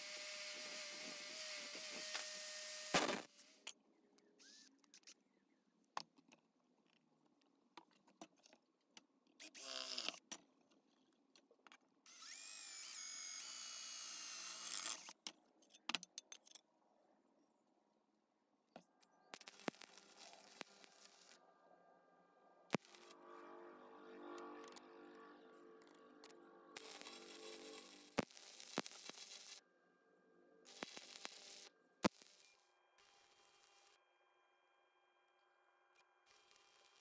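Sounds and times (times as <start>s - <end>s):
angle grinder cutting steel pipe: 0.0s - 3.3s, 22.7s - 29.6s, 30.6s - 34.0s.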